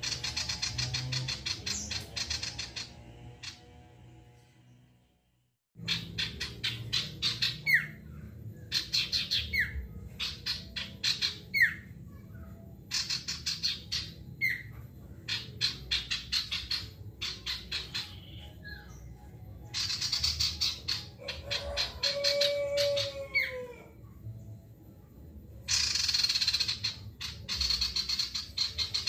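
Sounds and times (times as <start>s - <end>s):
bird singing chattering notes: 0.0s - 3.6s, 5.8s - 12.2s, 12.9s - 22.4s, 25.7s - 29.0s.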